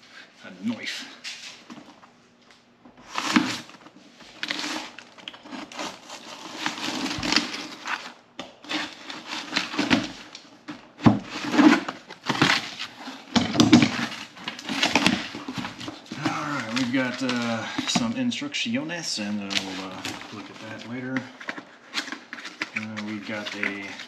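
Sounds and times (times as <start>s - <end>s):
packaging crackling and rustling: 3.0s - 18.2s, 19.4s - 24.0s
knife cutting packaging: 11.2s - 18.1s, 19.5s - 24.0s.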